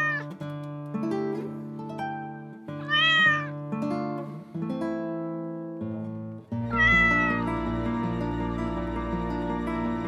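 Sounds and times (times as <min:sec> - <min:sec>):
cat meowing: 0:00.0 - 0:00.3, 0:02.8 - 0:03.6, 0:06.7 - 0:07.5
plucked guitar music: 0:00.0 - 0:10.0.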